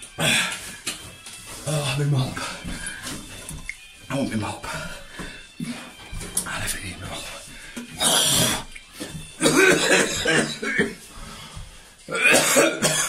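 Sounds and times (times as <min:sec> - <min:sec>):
man coughing: 0:07.9 - 0:08.6, 0:09.4 - 0:11.1, 0:12.1 - 0:13.0.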